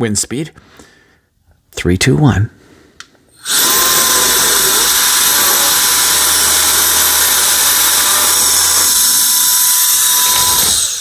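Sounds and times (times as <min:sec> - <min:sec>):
air duster motor whine: 0:03.4 - 0:11.0.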